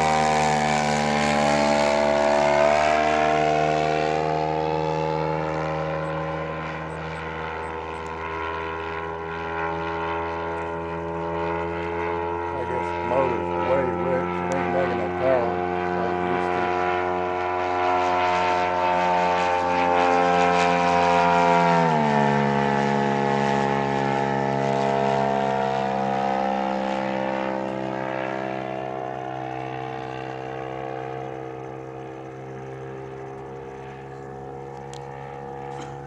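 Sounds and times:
model airplane engine droning: 0.0s - 36.0s.

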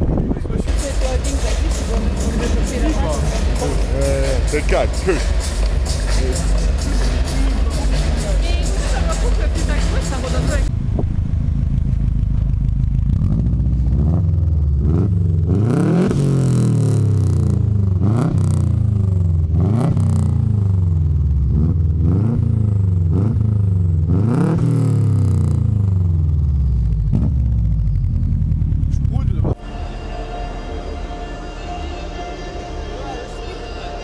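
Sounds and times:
car engine revving over idle: 0.0s - 34.0s.

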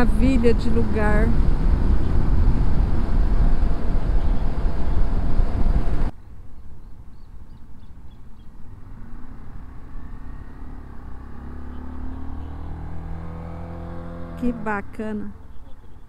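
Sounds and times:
motorcycle engine running: 0.0s - 6.1s
wind and road noise: 0.0s - 16.0s.

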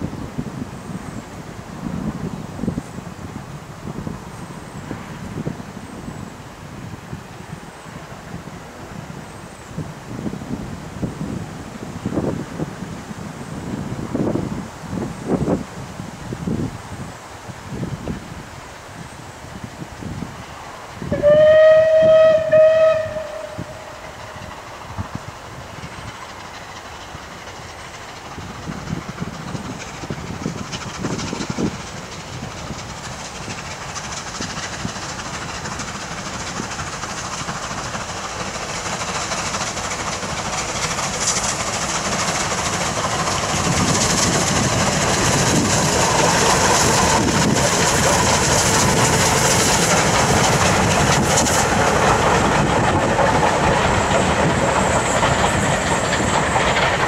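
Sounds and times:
steam train exhaust: 0.0s - 57.0s
wheels clattering over rail joints: 24.0s - 57.0s.

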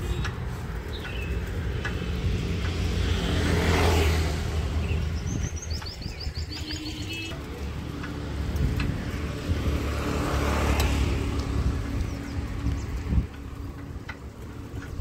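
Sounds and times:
traffic rumble: 0.0s - 15.0s
vehicle passing: 0.0s - 15.0s
bird chirping: 4.8s - 7.3s.

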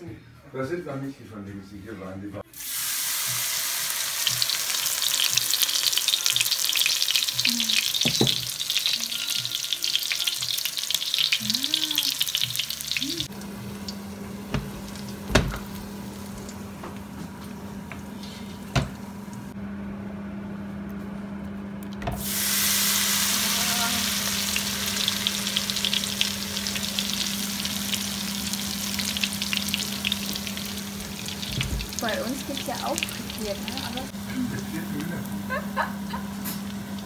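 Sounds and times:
deep-frying sizzle in oil: 2.6s - 16.6s, 22.2s - 37.0s.

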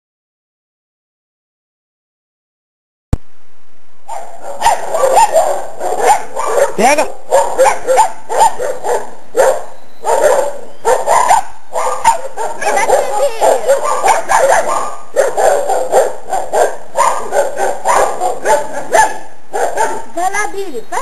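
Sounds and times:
puppies barking: 4.1s - 20.4s.

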